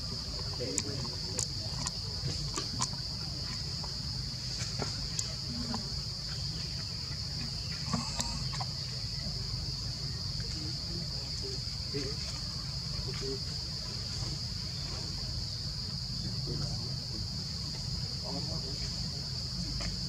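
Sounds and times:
high-pitched insect drone: 0.0 - 20.0.

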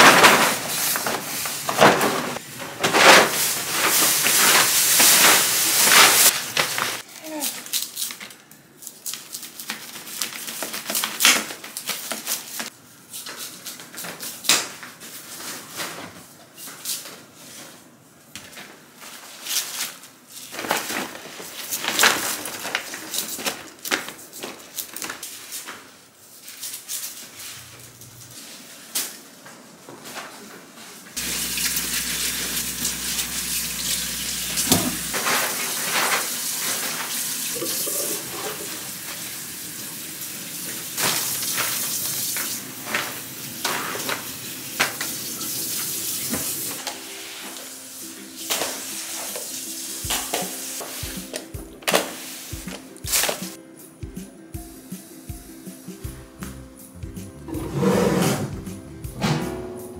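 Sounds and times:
tap running into sink: 31.2 - 35.1.

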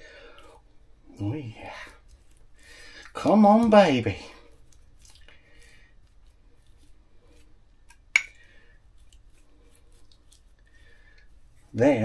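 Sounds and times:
pastry brush soft scratching: 1.1 - 12.0
ceramic mug clink: 8.2 - 8.4.

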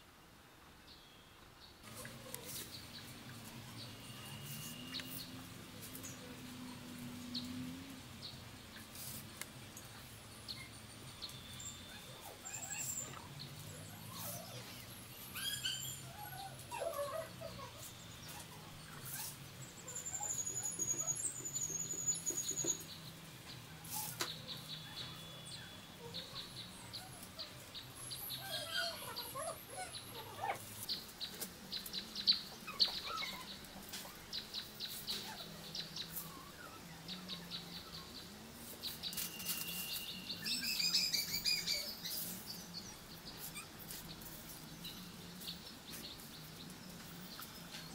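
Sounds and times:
small birds chirping: 0.9 - 47.9
palm leaves rustling and clicking: 1.8 - 10.1, 27.0 - 47.9
bird trill: 10.5 - 22.9, 39.0 - 42.3.

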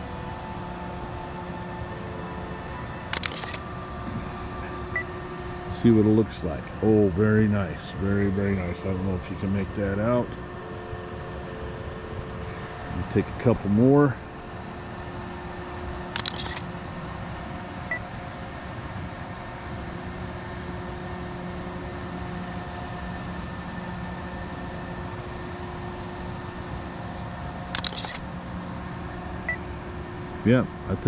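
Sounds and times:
steady low hum: 0.0 - 31.0
camera shutter clicks: 3.1 - 3.6, 16.2 - 16.7, 27.7 - 28.2.

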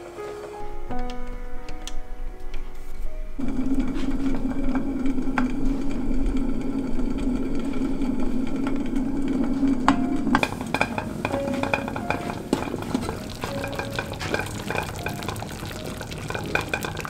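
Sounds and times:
low buzzing hum: 0.6 - 11.5.

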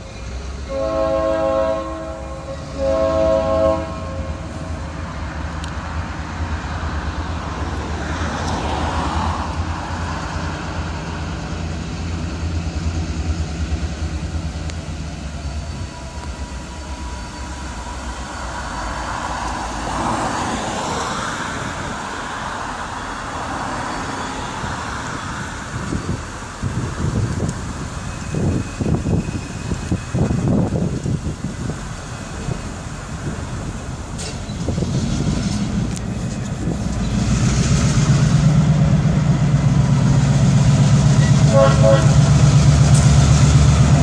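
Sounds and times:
locomotive engine low rumble: 0.0 - 44.0
rushing noise: 0.0 - 44.0
locomotive horn blasts: 0.6 - 4.9, 41.2 - 42.4.

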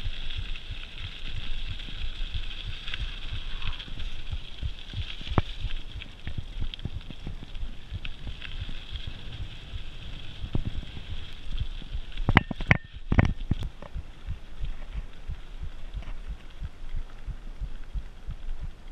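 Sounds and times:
wind buffeting camera: 0.0 - 18.9
bike bumps and rattles: 6.3 - 14.0.

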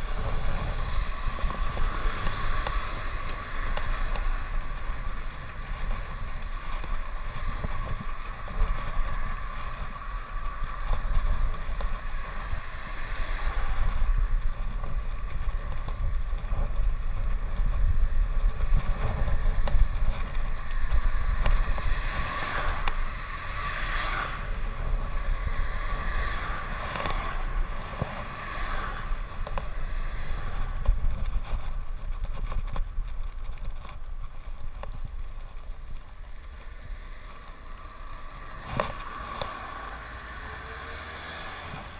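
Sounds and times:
bicycle tyres rumbling on tarmac: 0.0 - 41.9
vehicles swishing past: 0.0 - 41.9
wind buffeting microphone: 0.0 - 41.9.

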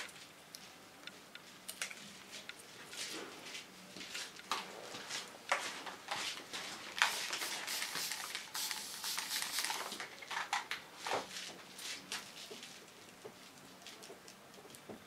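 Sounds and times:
spray bottle squirts: 7.0 - 10.0.

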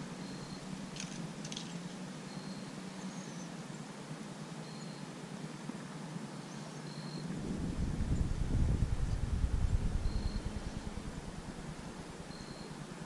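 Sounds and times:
wind buffeting microphone: 7.3 - 12.5.

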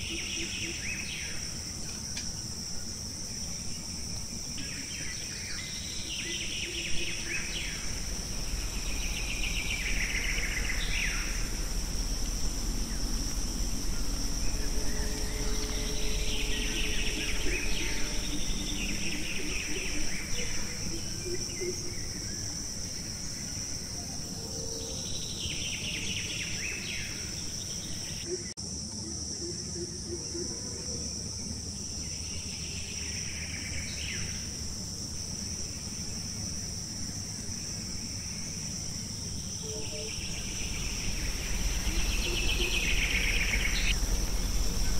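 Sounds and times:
high-pitched insect drone: 0.0 - 44.9
bird calls: 39.6 - 44.9.

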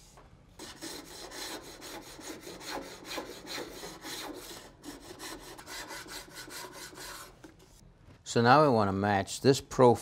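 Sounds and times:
block plane shaving wood: 0.6 - 7.3.

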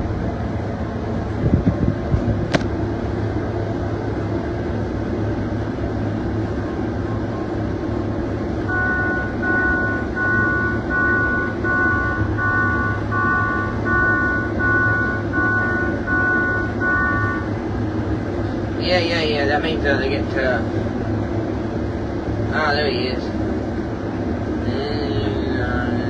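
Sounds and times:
combine harvester running: 0.0 - 26.0
cab warning beeper: 8.6 - 17.6.

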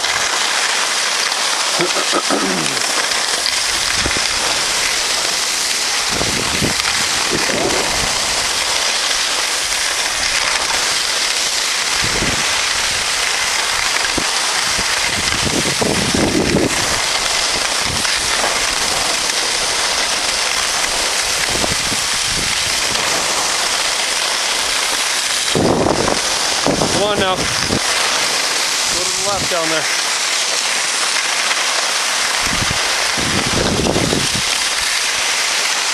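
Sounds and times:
skis sliding over packed snow: 0.0 - 35.9
wind buffeting microphone: 3.3 - 11.1, 11.8 - 29.8, 32.3 - 35.0.

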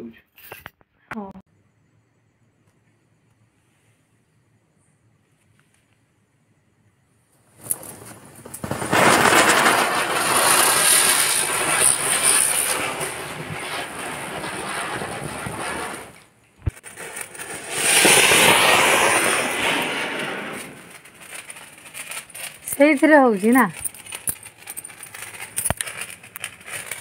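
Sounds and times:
firework spinner hissing: 7.5 - 27.0.

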